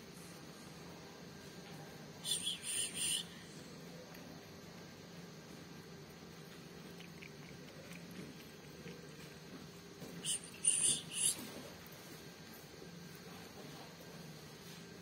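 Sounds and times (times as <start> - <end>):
cat lapping milk: 4.8 - 10.0
short high-pitched chirps: 10.2 - 11.4.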